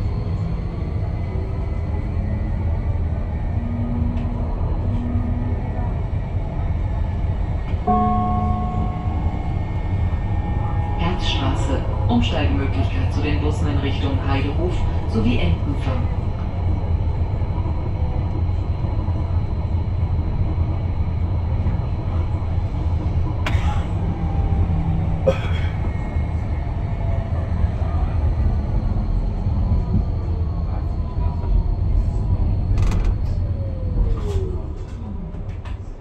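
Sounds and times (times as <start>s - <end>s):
tram wheels rumbling on rails: 0.0s - 36.0s
tram whine falling in pitch: 7.8s - 14.2s.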